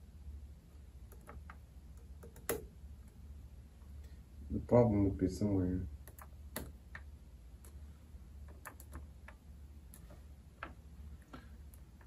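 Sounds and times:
low steady hum: 0.0s - 12.0s
test probes clicking on terminals: 1.1s - 2.7s.

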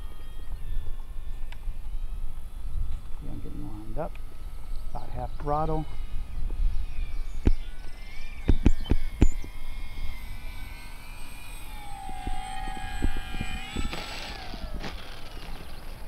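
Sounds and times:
wind on the microphone: 0.0s - 10.8s, 11.7s - 15.8s
model plane motor whine: 0.0s - 16.0s
plane touching down: 0.0s - 16.0s
sharp thumps: 11.7s - 15.7s.

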